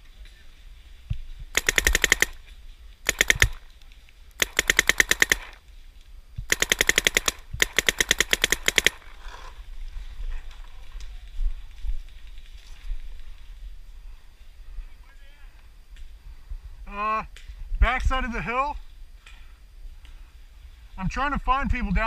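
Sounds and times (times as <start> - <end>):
paintball marker rapid firing: 1.5 - 2.4, 3.0 - 3.7, 4.4 - 5.6, 6.5 - 9.1.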